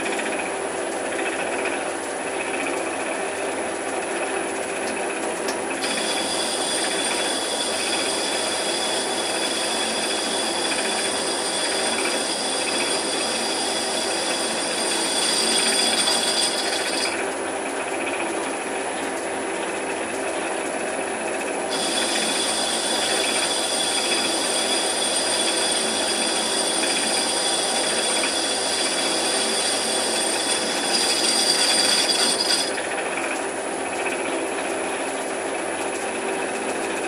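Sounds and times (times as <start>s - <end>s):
lathe running: 0.0s - 37.0s
high whine: 5.8s - 17.2s, 21.7s - 32.8s.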